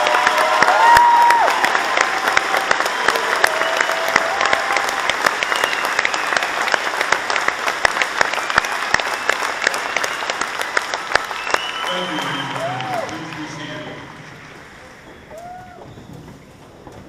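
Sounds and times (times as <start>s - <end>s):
audience applause: 0.0s - 16.0s.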